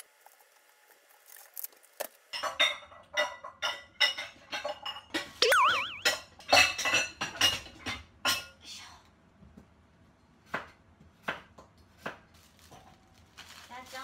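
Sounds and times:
clatter of dishes and utensils: 2.3 - 5.4, 6.8 - 8.6, 11.3 - 14.0.

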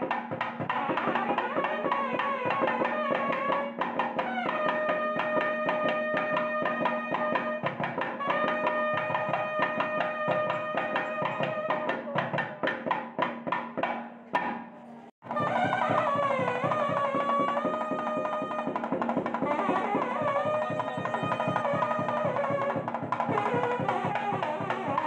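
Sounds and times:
instrumental music with percussion beat: 0.0 - 25.0
long held notes: 19.4 - 22.8.

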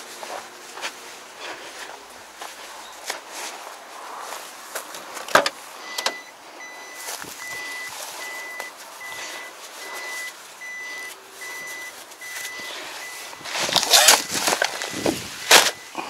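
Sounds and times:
truck warning buzzer beeping: 5.8 - 16.0
plastic bags rustling: 7.0 - 16.0.

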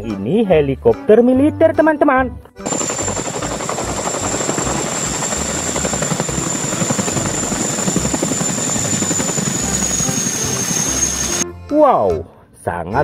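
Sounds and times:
helicopter rotor beat: 2.6 - 11.4
high turbine whine: 2.6 - 11.4.

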